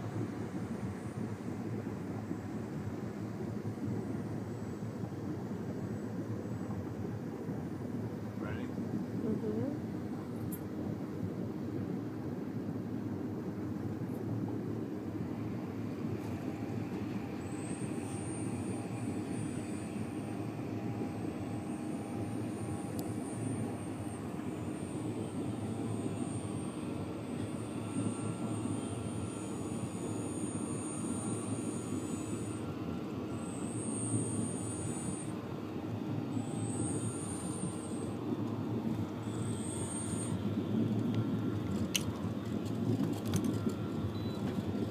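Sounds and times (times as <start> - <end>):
low rumble of wind and water: 0.0 - 44.9
electric motor whine: 15.1 - 44.9.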